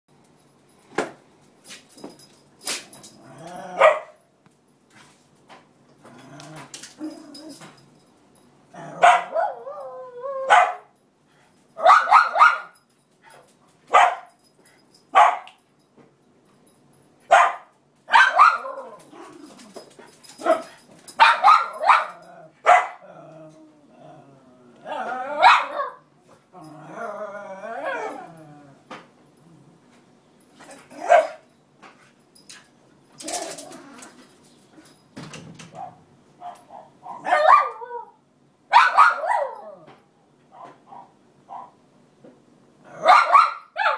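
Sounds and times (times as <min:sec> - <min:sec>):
dog barking: 0:03.8 - 0:04.2, 0:09.0 - 0:09.6, 0:10.5 - 0:10.9, 0:11.8 - 0:12.8, 0:13.9 - 0:14.3, 0:15.2 - 0:15.6, 0:17.3 - 0:19.0, 0:20.4 - 0:23.0, 0:25.4 - 0:26.0, 0:31.0 - 0:31.4, 0:35.8 - 0:37.9, 0:38.7 - 0:39.6, 0:40.5 - 0:41.8, 0:43.0 - 0:43.9
dog whining: 0:26.6 - 0:28.8.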